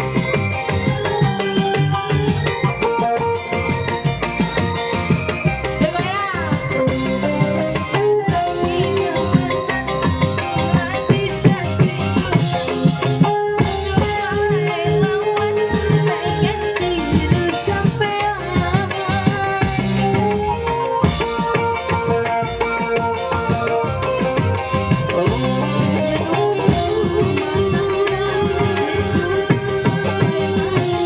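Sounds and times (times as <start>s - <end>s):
electronic keyboard melody: 0.0s - 31.0s
hand drums: 0.0s - 31.0s
rattling shaker beat: 21.0s - 31.0s.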